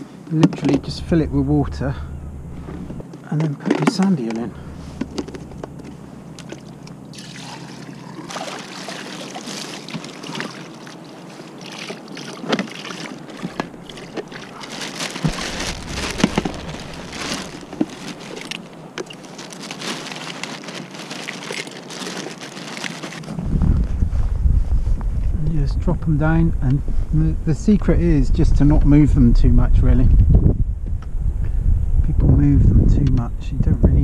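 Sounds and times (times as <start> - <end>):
seawater splashing and sloshing: 4.8 - 23.3.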